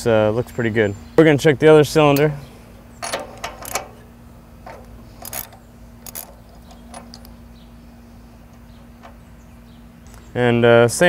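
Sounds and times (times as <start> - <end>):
faint steady hum: 0.0 - 11.0
socket wrench metallic clicks: 3.0 - 4.0.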